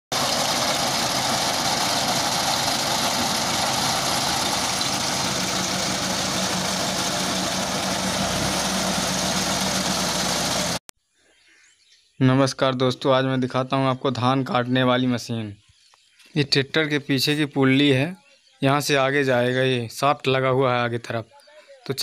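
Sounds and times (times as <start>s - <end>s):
tractor diesel engine running: 0.1s - 10.8s.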